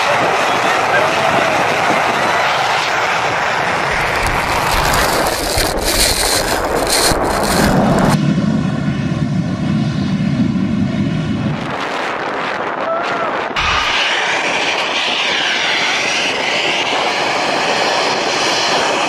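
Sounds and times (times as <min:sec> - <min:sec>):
airplane engines roaring: 0:00.0 - 0:19.0.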